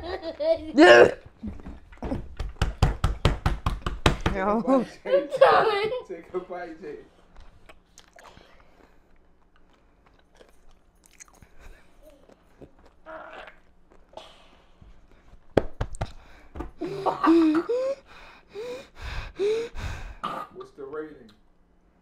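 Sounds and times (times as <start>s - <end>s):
pickle crunching and chewing: 7.5s - 14.2s.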